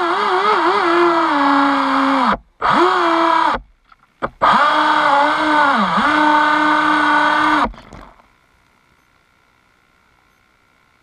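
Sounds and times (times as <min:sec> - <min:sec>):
electric motor whining: 0:00.0 - 0:03.6, 0:04.2 - 0:08.2.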